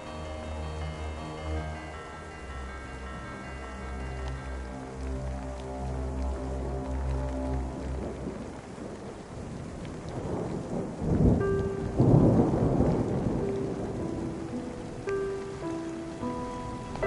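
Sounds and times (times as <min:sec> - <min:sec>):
steady rain: 0:00.0 - 0:17.0
thunder rolling: 0:07.6 - 0:15.6.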